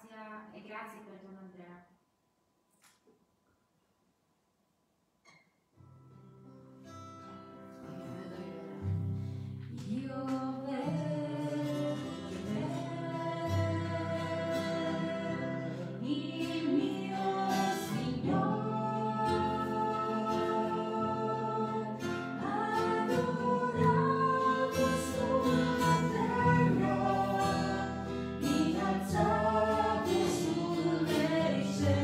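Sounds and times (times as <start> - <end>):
acoustic guitar: 5.2 - 32.0
voices singing together: 9.9 - 32.0.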